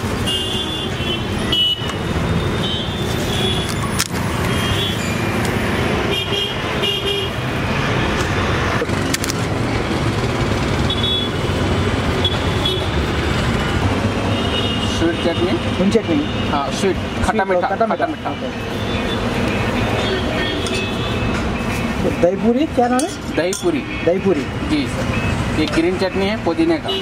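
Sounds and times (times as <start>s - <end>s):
street traffic noise: 0.0s - 27.0s
vehicle horn toots: 0.2s - 2.0s, 10.9s - 11.4s.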